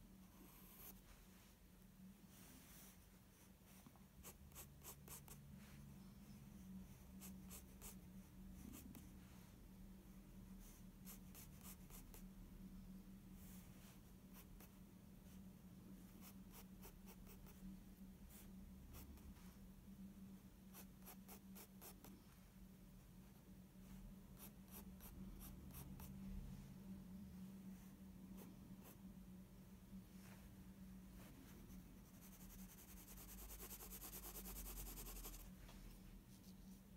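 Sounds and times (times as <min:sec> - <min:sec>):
faint low hum: 0:00.0 - 0:36.9
pencil scratching on paper: 0:07.2 - 0:08.0, 0:31.7 - 0:35.5.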